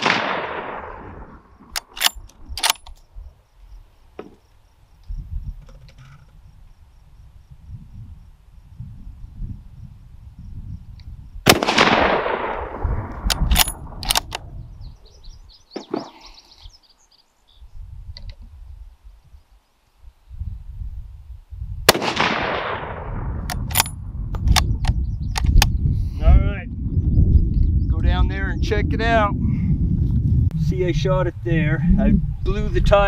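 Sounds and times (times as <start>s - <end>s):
rifle shots echoing: 0.0s - 2.8s, 11.5s - 14.4s, 21.9s - 23.9s
rifle bolt clicks: 1.7s - 3.0s, 13.2s - 14.4s, 23.4s - 25.7s.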